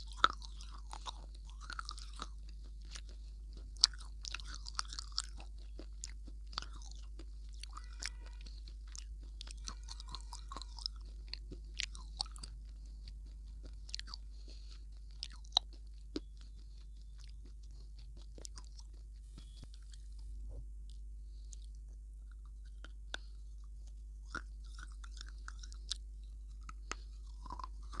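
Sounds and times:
chewing with crisp crunches: 0:00.0 - 0:28.0.

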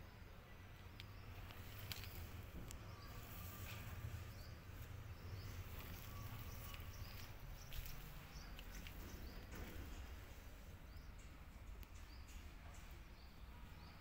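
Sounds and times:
low steady rumble: 0:00.0 - 0:14.0
faint clicks: 0:05.8 - 0:10.1.

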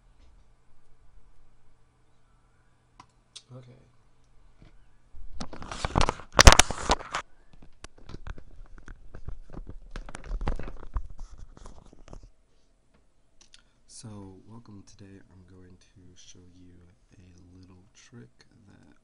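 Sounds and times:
scattered crackles and clicks: 0:05.3 - 0:13.6.

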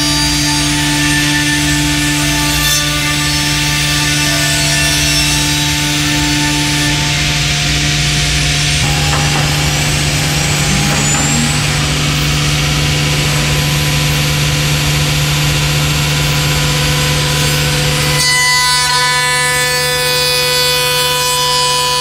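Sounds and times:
machine hum: 0:00.0 - 0:21.1
whine of several pitches: 0:06.2 - 0:18.9.

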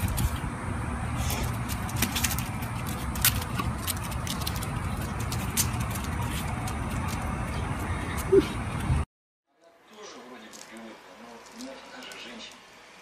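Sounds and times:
low street rumble: 0:00.0 - 0:09.1.

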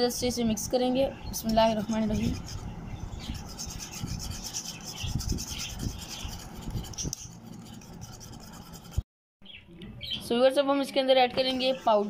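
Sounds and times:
whisk beating in a bowl: 0:02.0 - 0:09.0.

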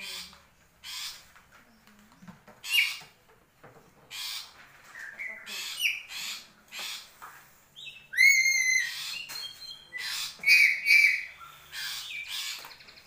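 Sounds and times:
parrot screechy calls: 0:07.9 - 0:12.6
parrot whistled call: 0:08.1 - 0:09.0
parrot harsh squawks: 0:08.1 - 0:09.2.

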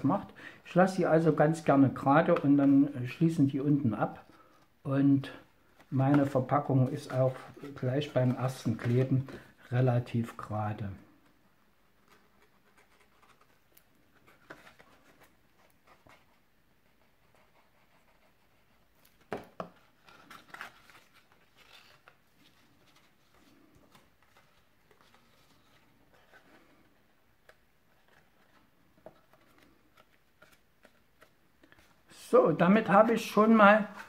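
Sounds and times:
cardstock box rustling and tapping: 0:19.2 - 0:20.6.

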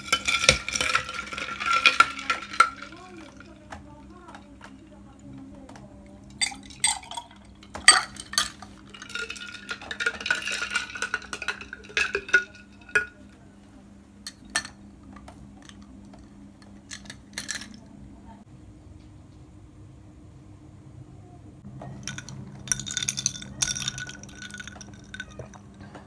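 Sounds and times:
glass clinks: 0:22.0 - 0:25.6
liquid pouring into glass: 0:22.0 - 0:25.6.

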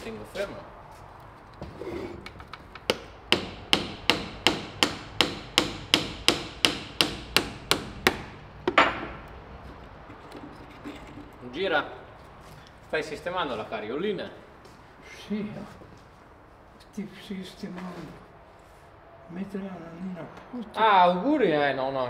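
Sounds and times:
hammer striking wooden wheel: 0:02.8 - 0:09.2.

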